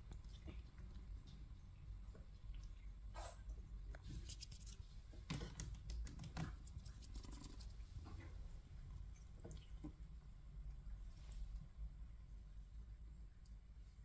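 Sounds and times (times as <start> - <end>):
kitten claws scratching wicker: 4.1 - 4.8, 5.6 - 7.8.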